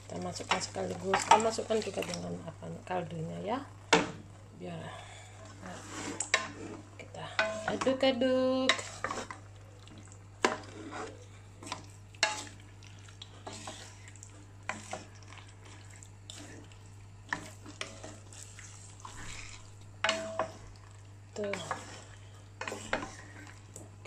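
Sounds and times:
faint sizzle: 0:00.0 - 0:24.0
spatula scraping a wok: 0:05.4 - 0:09.4, 0:10.4 - 0:20.8, 0:21.4 - 0:23.8.

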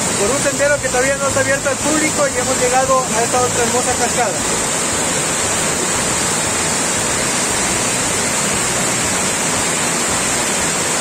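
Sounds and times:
waterfall rushing over rocks: 0:00.0 - 0:11.0.

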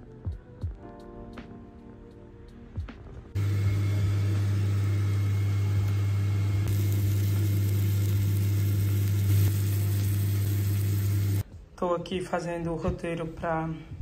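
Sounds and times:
low motor hum: 0:03.4 - 0:11.4
fish frying in a pan: 0:06.7 - 0:11.4.

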